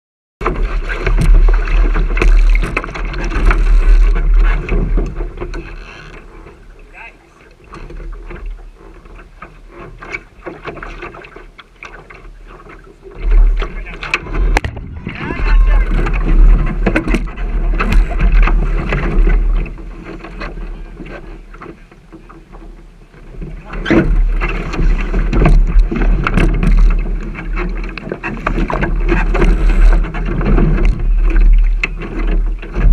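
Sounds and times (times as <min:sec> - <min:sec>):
water slapping against hull: 0:00.4 - 0:32.9
wind buffeting microphone: 0:14.2 - 0:20.2.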